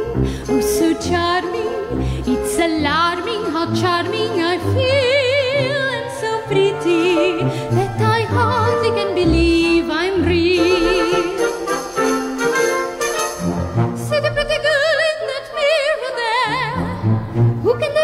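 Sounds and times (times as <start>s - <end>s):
woman singing with vibrato: 0.0s - 12.1s, 14.0s - 18.0s
wind band playing: 10.5s - 14.7s.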